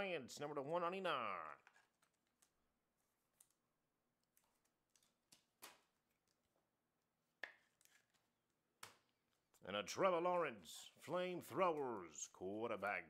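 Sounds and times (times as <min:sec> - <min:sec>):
plastic sleeve rustling: 0:01.6 - 0:06.6.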